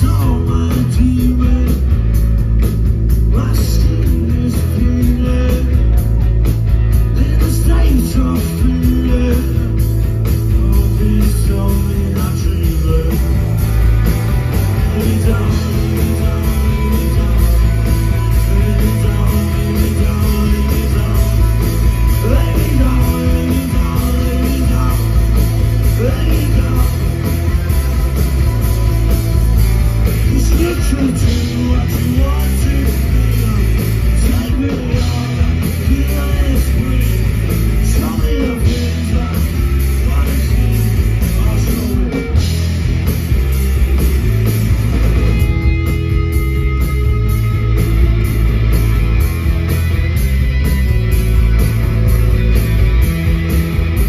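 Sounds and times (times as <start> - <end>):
person singing lead vocal: 0.0 - 2.2, 3.2 - 6.1, 7.0 - 13.6, 14.6 - 29.1, 30.1 - 42.6
bass guitar: 0.0 - 54.0
drums: 0.0 - 54.0
electric guitars: 0.0 - 54.0.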